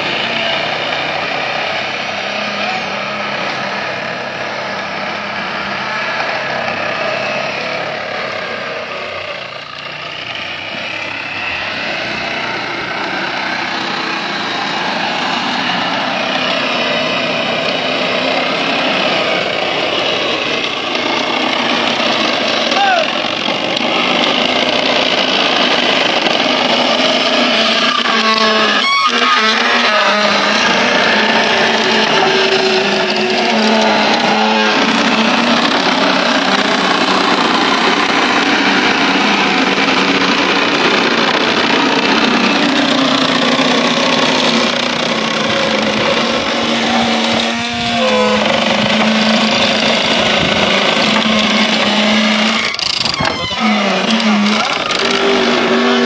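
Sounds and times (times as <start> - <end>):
sugarcane mill rollers running: 0.0 - 56.0
wavering squeaks: 26.5 - 37.5, 42.2 - 56.0.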